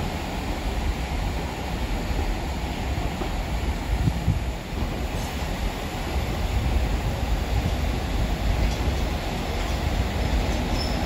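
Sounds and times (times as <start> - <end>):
train rumbling: 0.0 - 11.0
wind on microphone: 3.8 - 5.1.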